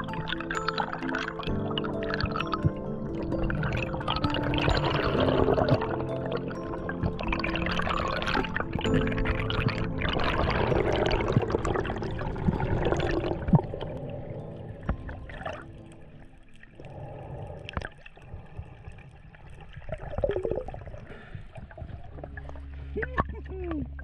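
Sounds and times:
underwater rushing gurgling water: 0.0s - 24.0s
underwater clicks and pops: 14.8s - 17.0s, 21.6s - 24.0s.

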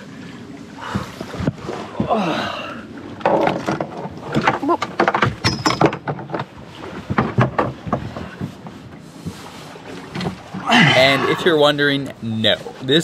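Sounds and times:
knocks and clatters on boat deck: 0.8s - 10.7s.

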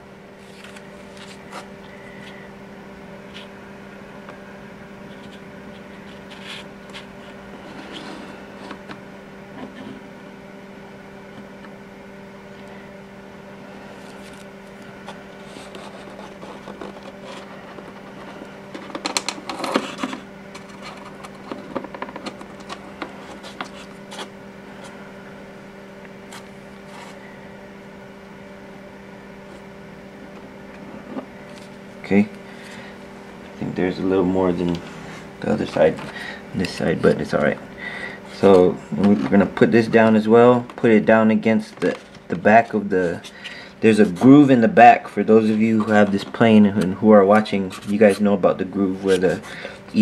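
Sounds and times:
steady low hum: 0.0s - 50.0s
clicks and rustles of handling: 14.0s - 25.0s, 41.6s - 42.4s.

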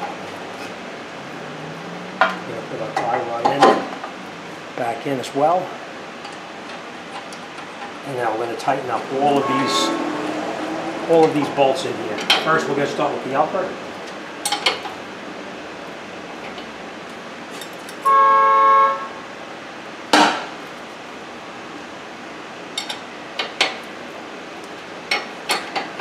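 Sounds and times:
short pitched tone: 9.2s - 10.2s, 18.1s - 19.2s.

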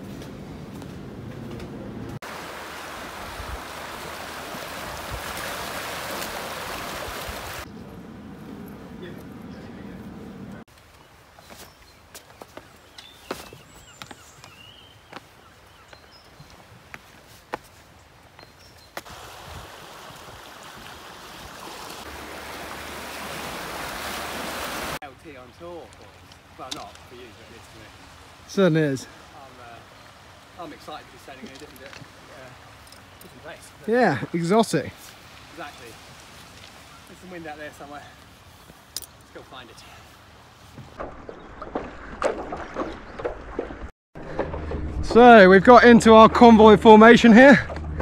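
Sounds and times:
water hissing through shingle: 2.2s - 7.7s, 19.0s - 25.0s
waves washing over pebbles: 2.2s - 7.7s, 19.1s - 25.0s.

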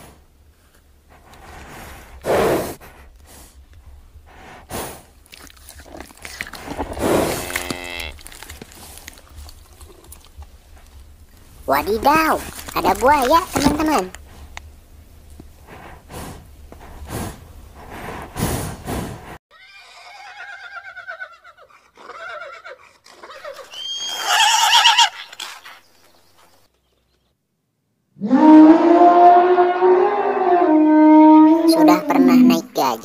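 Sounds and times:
elephant trumpeting: 19.6s - 25.8s, 28.2s - 32.8s.

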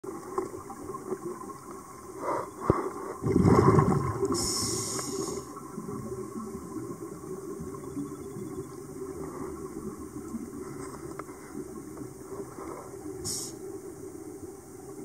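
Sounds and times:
steady water noise: 0.0s - 15.0s
gurgling rush of exhaled bubbles: 3.1s - 10.8s
regulator hiss: 4.3s - 5.6s, 12.7s - 13.8s.

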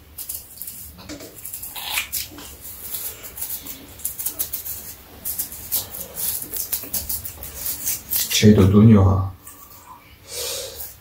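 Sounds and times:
blade peeling pear skin: 0.0s - 8.8s.

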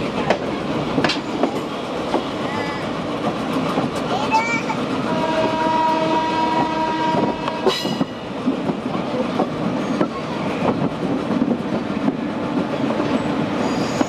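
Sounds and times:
train wheels rumbling and clattering: 0.0s - 14.0s
multi-tone train horn: 5.0s - 8.2s.

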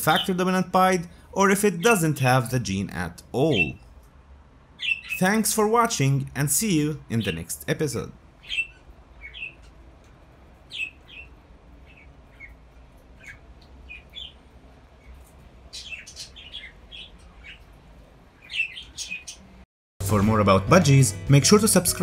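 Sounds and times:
budgerigars chirping: 4.8s - 5.4s, 8.4s - 9.8s, 10.7s - 14.4s, 15.0s - 17.7s, 18.4s - 19.5s.

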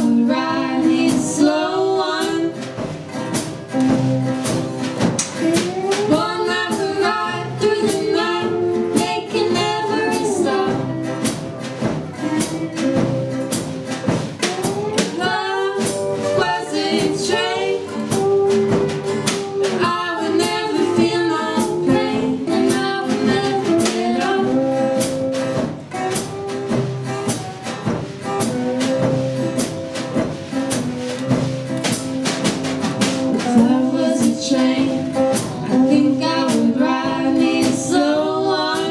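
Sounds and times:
person singing: 0.0s - 25.4s, 33.3s - 38.9s
acoustic bass guitar: 0.0s - 38.9s
acoustic guitars: 0.0s - 38.9s
drum kit: 0.0s - 38.9s.

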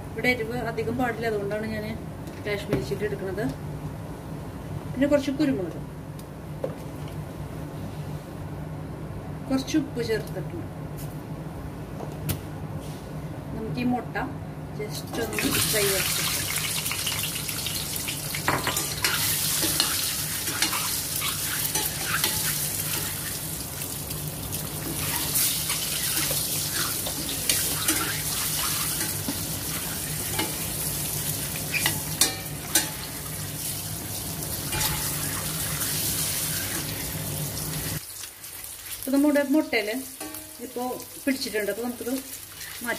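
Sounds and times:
eggs sizzling in hot oil: 15.4s - 42.9s
spoon scraping a pan: 18.6s - 23.2s, 25.0s - 29.3s.

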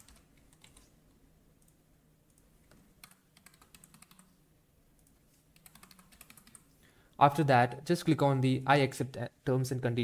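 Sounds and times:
typing on keyboard: 0.0s - 0.9s, 3.0s - 4.3s, 5.0s - 6.7s.

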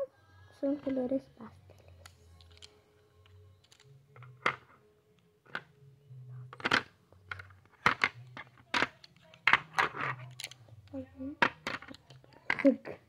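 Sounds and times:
pencils clacking on plastic box: 2.0s - 2.7s, 3.6s - 4.7s, 6.5s - 13.0s.

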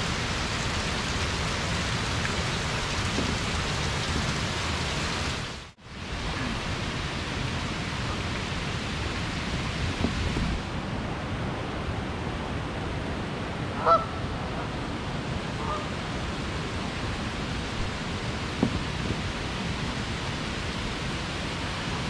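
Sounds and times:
geese honking: 13.8s - 14.1s.

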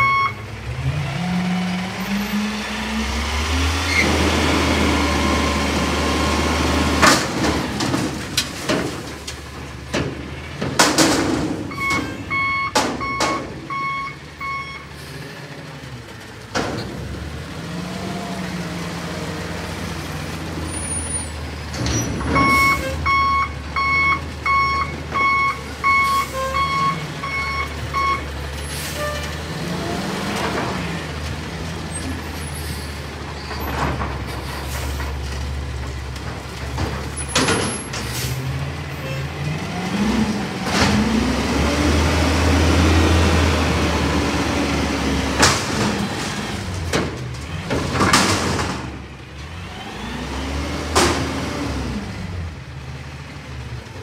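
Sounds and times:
reversing alarm beeping: 0.0s - 0.4s, 11.7s - 14.9s, 22.4s - 28.3s.

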